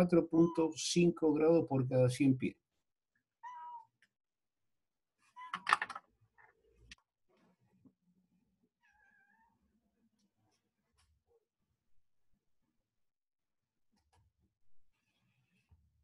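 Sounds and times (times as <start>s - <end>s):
cat meowing: 3.4s - 4.0s, 8.8s - 9.6s.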